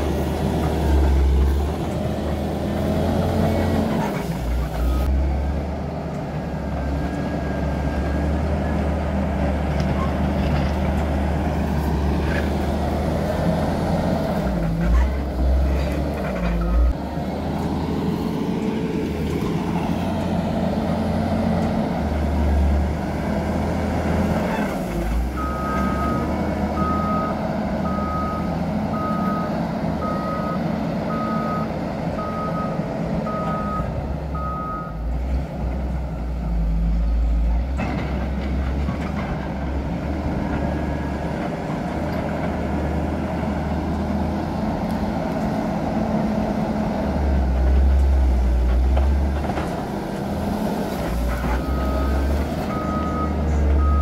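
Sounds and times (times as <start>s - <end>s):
diesel engine running: 0.0s - 54.0s
reversing alarm beeping: 51.6s - 54.0s.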